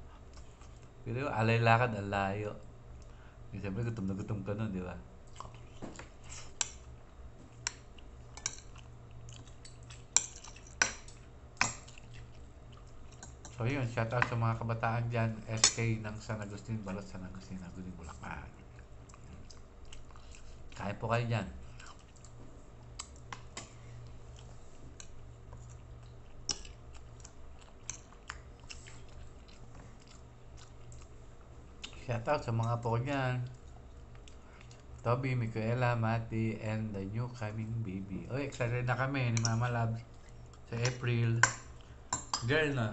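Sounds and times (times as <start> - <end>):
chewing: 0.0 - 1.0, 5.3 - 13.7, 16.5 - 20.9, 21.6 - 32.8, 33.4 - 35.1, 38.3 - 42.5
low steady hum: 0.0 - 42.9.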